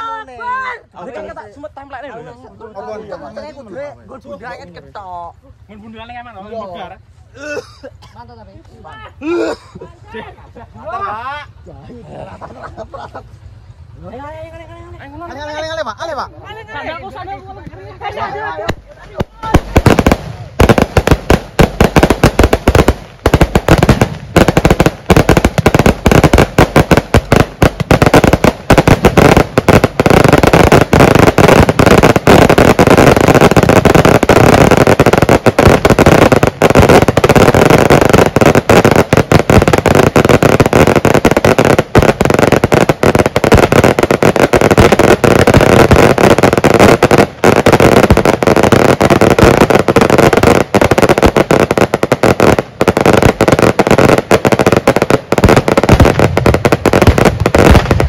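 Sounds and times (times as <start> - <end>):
firecrackers going off: 17.6 - 58.0.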